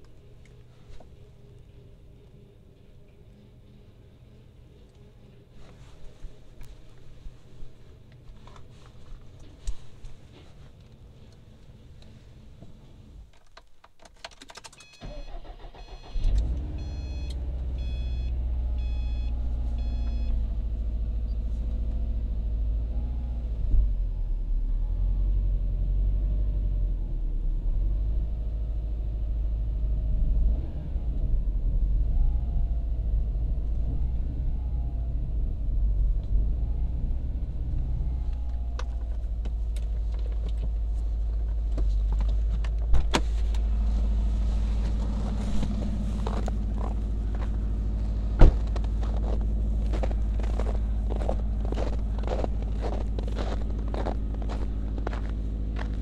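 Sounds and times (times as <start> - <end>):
car engine cranking and idling: 12.9 - 56.0
repeating high beep: 14.8 - 20.3.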